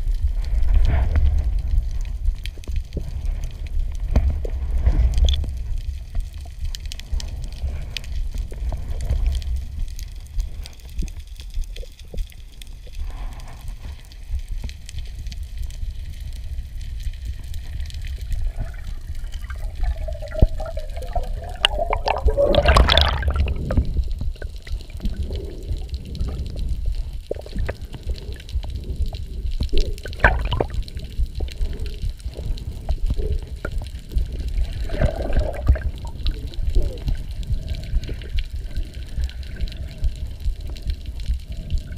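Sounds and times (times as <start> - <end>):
muffled underwater rumble: 0.0 - 41.9
water bubbling and splashing: 15.4 - 41.9.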